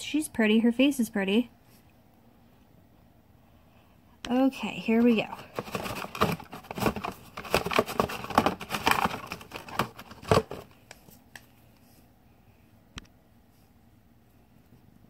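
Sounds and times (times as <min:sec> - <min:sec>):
plastic capsule dropping: 0:05.5 - 0:10.8.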